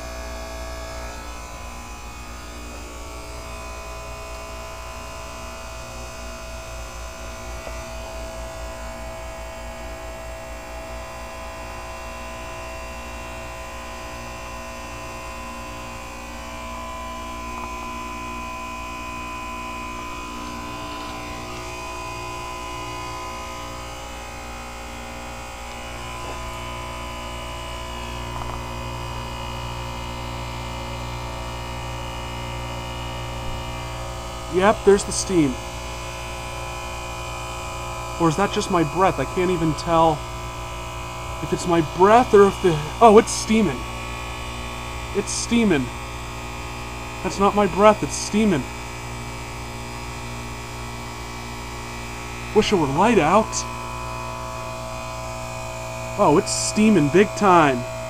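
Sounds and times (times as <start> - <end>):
heat pump electrical hum: 0.0 - 58.0.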